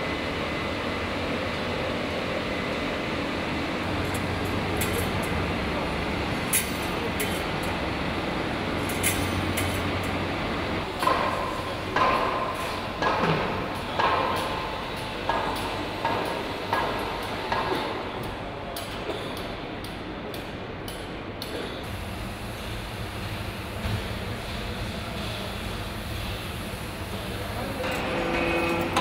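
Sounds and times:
steady workshop background noise: 0:00.0 - 0:29.0
metallic clanks and taps: 0:12.0 - 0:14.6.

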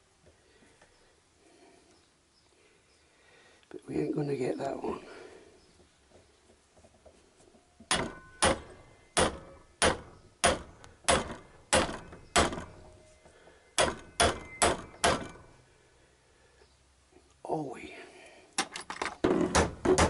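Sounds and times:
hammer striking metal: 0:07.9 - 0:12.7, 0:13.8 - 0:15.5.

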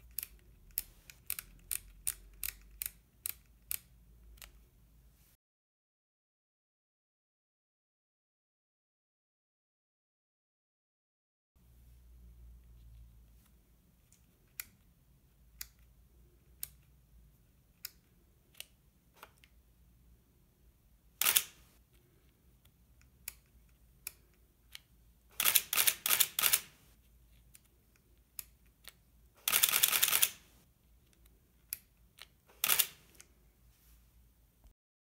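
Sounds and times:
camera shutter with film advance: 0:21.2 - 0:21.6, 0:25.4 - 0:26.8, 0:29.4 - 0:30.4, 0:32.6 - 0:33.1.

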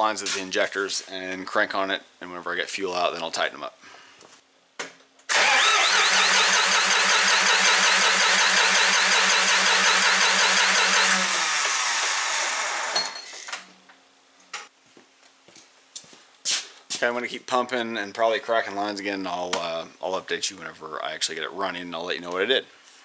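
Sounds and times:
diesel engine cranking on starter: 0:05.3 - 0:12.9.

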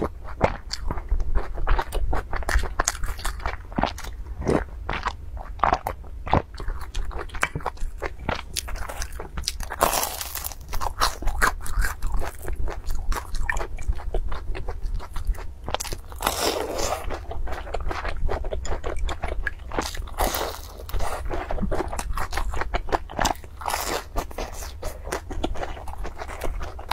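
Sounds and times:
wet chewing crunches: 0:00.0 - 0:26.9.

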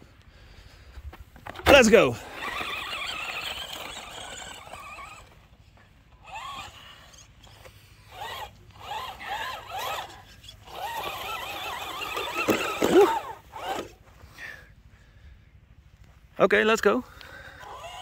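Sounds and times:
toy truck electric motor whining: 0:01.5 - 0:05.5, 0:06.1 - 0:14.0, 0:17.4 - 0:18.0.

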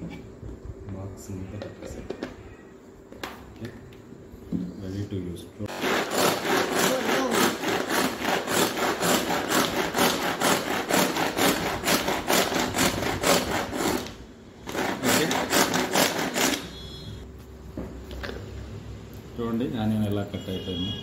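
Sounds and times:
blades chopping vegetables: 0:05.7 - 0:16.8.

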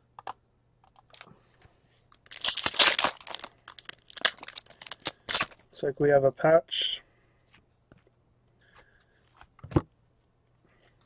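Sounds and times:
wrapper crinkling: 0:02.2 - 0:05.6
foil pack ripping: 0:02.3 - 0:05.6.

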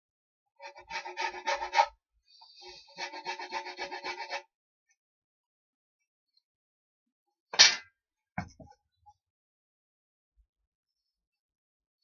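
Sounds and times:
rasping strokes on wood: 0:00.6 - 0:04.4.

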